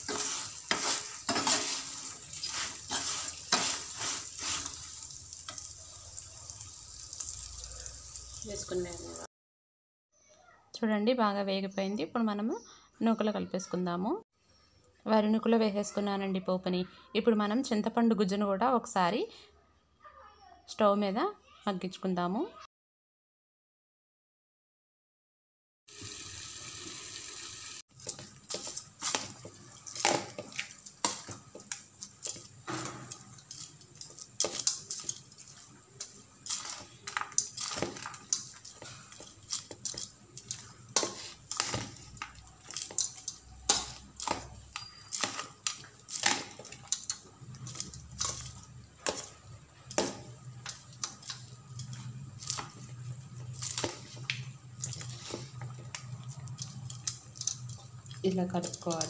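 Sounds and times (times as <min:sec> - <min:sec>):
metal spoon scraping steel bowl: 0:00.0 - 0:04.8.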